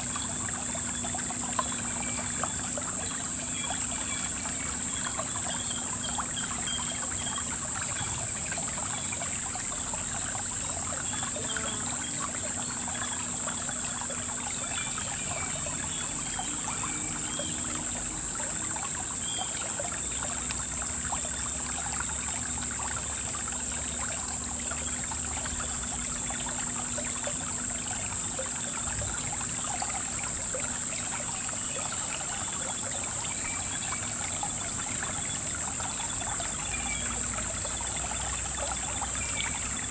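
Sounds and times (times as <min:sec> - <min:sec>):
river water babbling over stones: 0:00.0 - 0:39.9
high-pitched insect buzz: 0:00.1 - 0:19.9.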